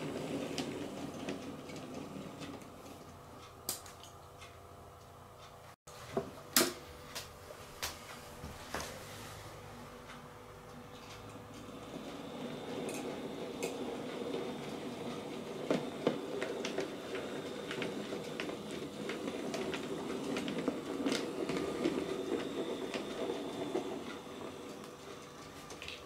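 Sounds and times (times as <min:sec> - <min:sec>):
wheels clicking over rail joints: 0:12.2 - 0:26.0.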